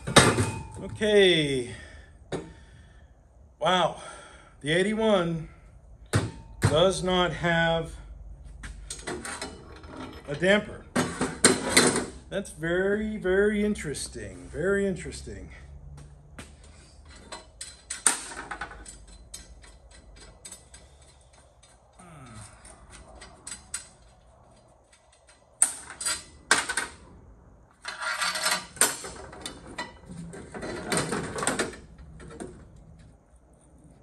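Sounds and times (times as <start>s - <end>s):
metal clattering and scraping: 0.0s - 1.0s, 8.6s - 12.3s, 16.4s - 27.1s, 27.7s - 34.0s
metal parts clicking and clinking: 17.0s - 27.0s, 27.8s - 33.1s.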